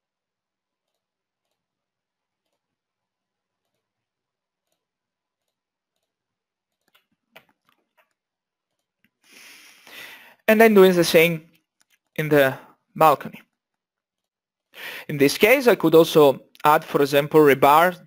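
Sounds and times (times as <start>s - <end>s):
computer mouse clicks: 0.8s - 1.6s, 2.4s - 2.7s, 3.6s - 3.9s, 4.6s - 9.2s.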